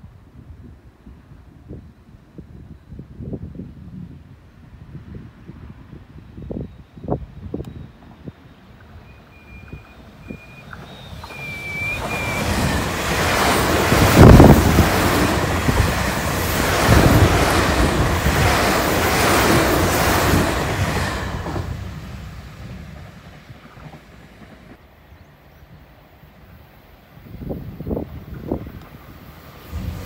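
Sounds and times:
train wheels rushing on rail: 6.5s - 25.3s, 25.9s - 30.0s.

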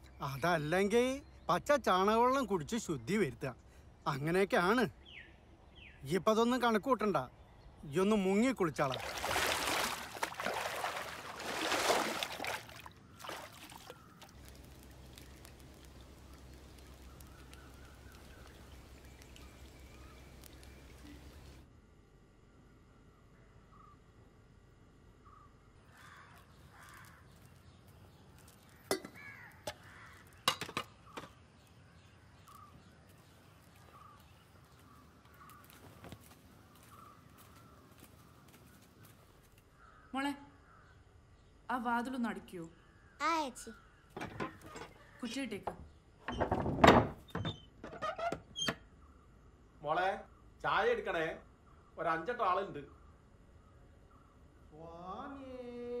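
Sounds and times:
water splashing and sloshing: 8.7s - 21.6s
faint bird calls: 12.0s - 21.6s, 23.3s - 24.2s, 25.2s - 27.8s, 28.4s - 41.6s
sharp knocks and clicks: 44.2s - 45.0s.

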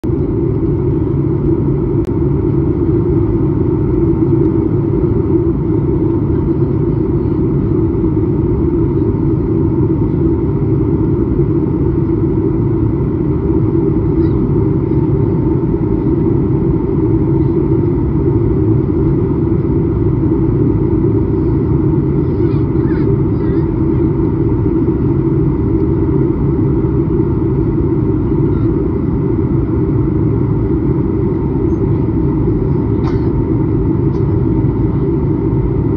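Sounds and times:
jet cabin engine and airflow roar: 0.0s - 35.9s.

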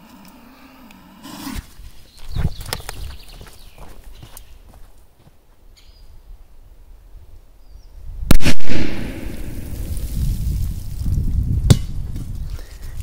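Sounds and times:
firecracker exploding: 8.3s - 11.2s
low rumbling noise: 8.3s - 11.6s.

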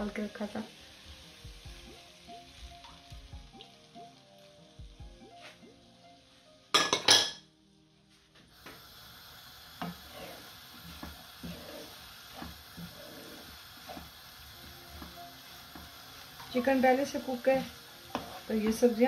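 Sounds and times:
faint background music: 0.0s - 19.0s
food sizzling: 0.0s - 19.0s
wooden spoon knocking a wok: 18.1s - 18.9s.

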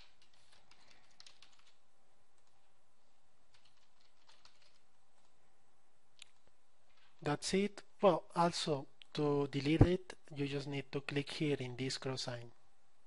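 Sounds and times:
keyboard typing: 0.0s - 2.7s, 3.5s - 5.4s.

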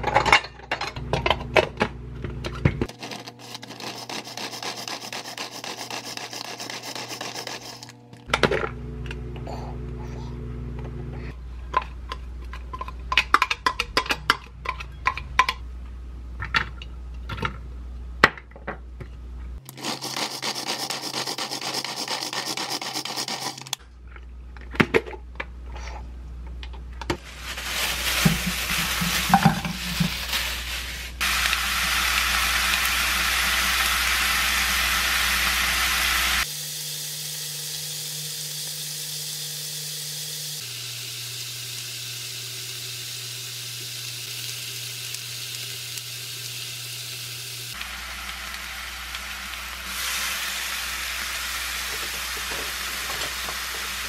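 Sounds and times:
meat sizzling in a frying pan: 31.2s - 54.0s
steady hissing noise: 39.9s - 54.0s.

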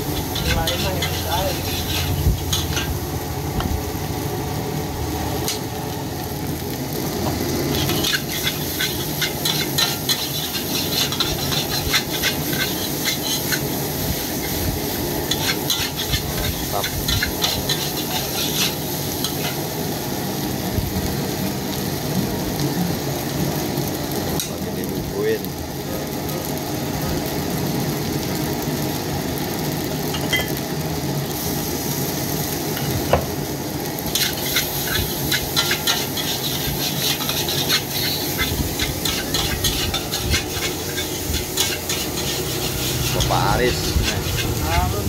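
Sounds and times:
metal spatula scraping a wok: 0.0s - 3.0s, 7.7s - 14.6s, 15.2s - 19.6s, 34.1s - 44.8s
rice sizzling in a wok: 0.0s - 45.0s.

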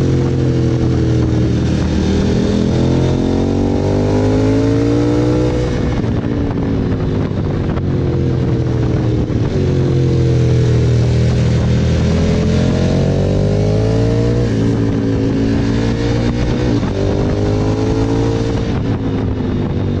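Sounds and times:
motorcycle engine revving: 0.0s - 20.0s
rushing wind and road noise: 0.0s - 20.0s.

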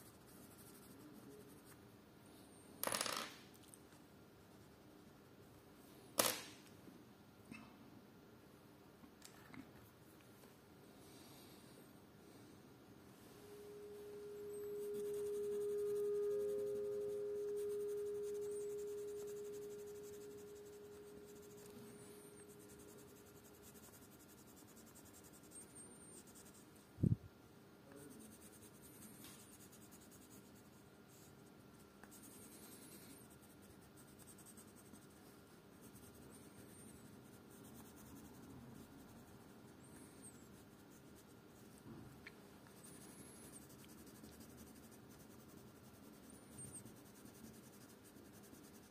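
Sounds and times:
pencil scratching on paper: 0.0s - 1.8s, 14.2s - 26.7s, 28.0s - 31.4s, 32.0s - 41.9s, 42.7s - 48.9s
clear steady tone: 11.2s - 31.4s, 32.0s - 48.9s.

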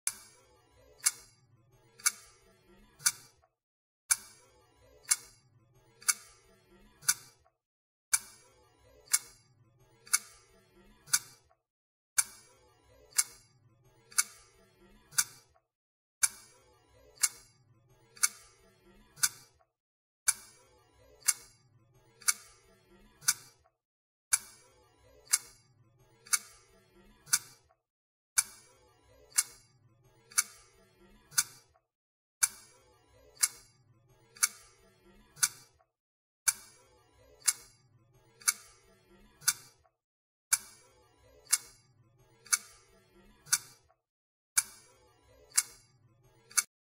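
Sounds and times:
clock ticking: 0.1s - 0.4s, 1.0s - 1.4s, 2.0s - 3.5s, 4.1s - 4.4s, 5.0s - 5.4s, 6.0s - 7.5s, 8.1s - 8.4s, 9.0s - 9.4s, 10.0s - 11.6s, 12.2s - 13.4s, 14.1s - 15.6s, 16.2s - 17.5s, 18.1s - 19.6s, 20.3s - 20.6s, 21.2s - 21.6s, 22.2s - 23.6s, 24.3s - 24.6s, 25.2s - 25.6s, 26.2s - 27.7s, 28.4s - 29.6s, 30.3s - 31.8s, 32.4s - 33.7s, 34.3s - 35.8s, 36.5s - 36.8s, 37.4s - 37.8s, 38.4s - 38.8s, 39.4s - 39.8s, 40.5s - 40.8s, 41.4s - 41.8s, 42.4s - 43.9s, 44.6s - 45.8s, 46.5s - 46.7s.

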